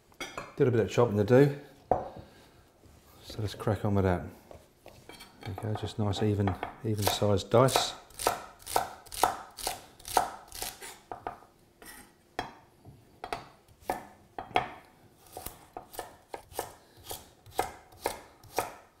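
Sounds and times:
knife chopping on wooden board: 7.0s - 11.3s, 13.2s - 18.9s.

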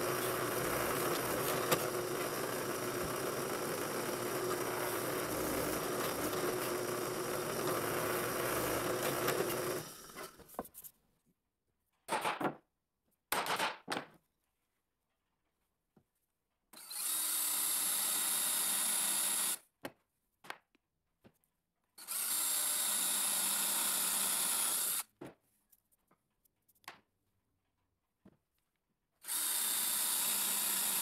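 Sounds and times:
electric drill boring into wood: 0.0s - 10.4s, 16.8s - 19.6s, 22.0s - 25.1s, 29.2s - 31.0s.

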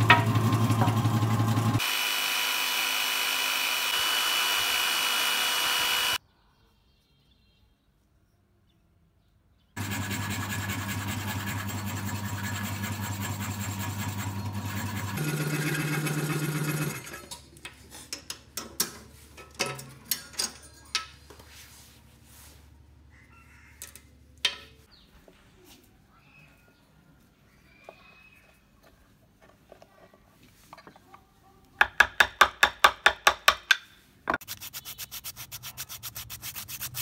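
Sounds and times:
electric drill running: 0.4s - 6.2s, 9.8s - 17.2s.

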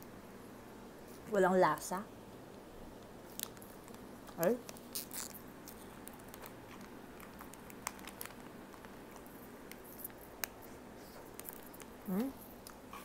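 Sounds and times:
plastic wrapper crinkling: 3.0s - 12.8s.

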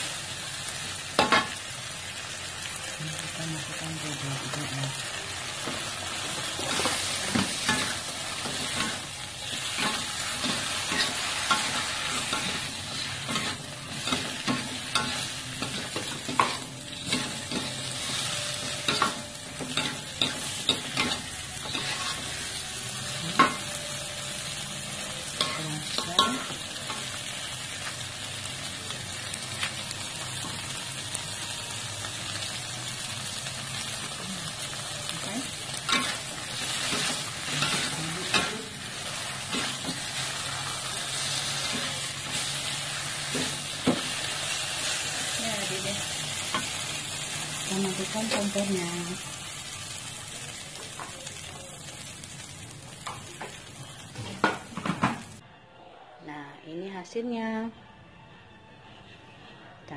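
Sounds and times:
food sizzling in a wok: 0.0s - 55.4s
metal spatula scraping a wok: 6.4s - 22.5s.

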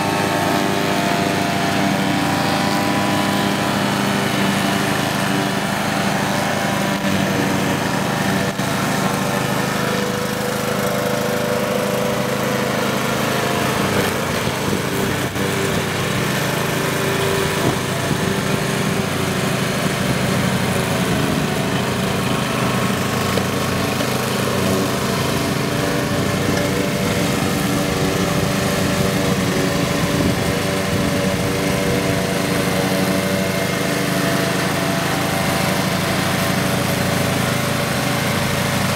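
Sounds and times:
mower blade deck whirring: 0.0s - 38.9s
ride-on mower engine running: 0.0s - 38.9s.

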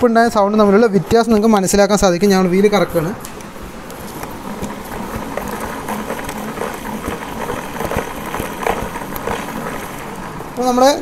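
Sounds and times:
steady rustle: 3.3s - 10.8s
scooter gearbox turning: 3.9s - 10.6s.

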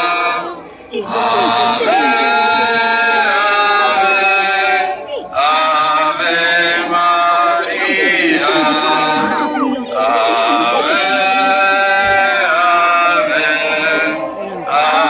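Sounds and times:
man singing a slow hymn: 6.8s - 15.0s.

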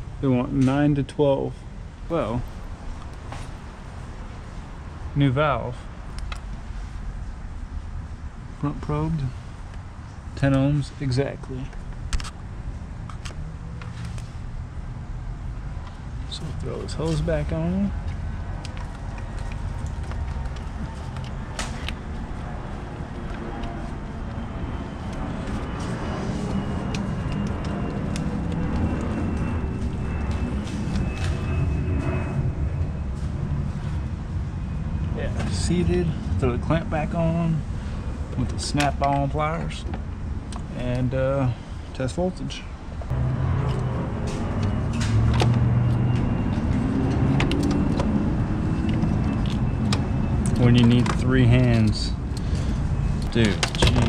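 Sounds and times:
low mechanical rumble: 1.6s - 54.0s
faint high whine: 22.4s - 38.0s.

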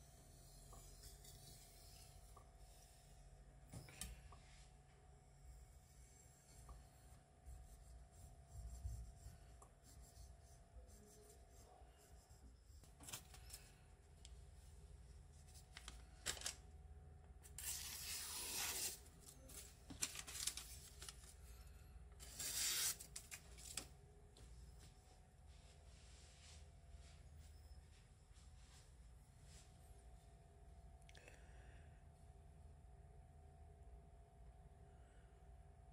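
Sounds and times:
newspaper crumpling on knife blade: 17.5s - 21.3s, 22.2s - 23.8s.

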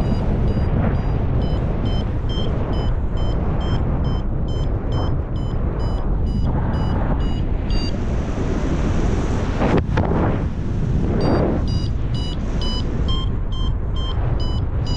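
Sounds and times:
variometer short high beeps: 0.0s - 7.9s, 11.2s - 14.9s
wind rushing over microphone: 0.0s - 14.9s.

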